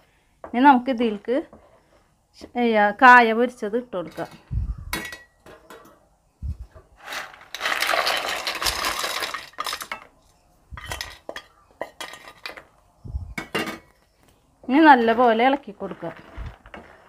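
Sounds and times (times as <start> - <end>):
fried pieces clattering into pan: 7.0 - 10.2, 10.8 - 12.7.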